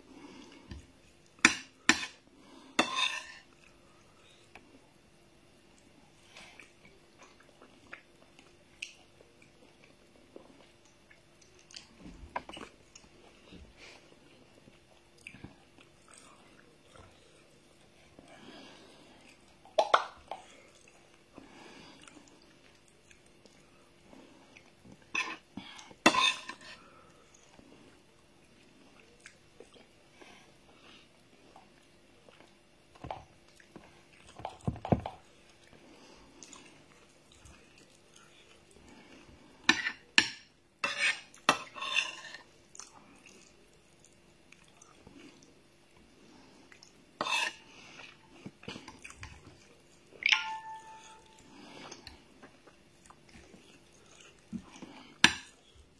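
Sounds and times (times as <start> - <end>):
quiet chewing: 5.6 - 40.1, 41.1 - 50.3, 51.0 - 55.9.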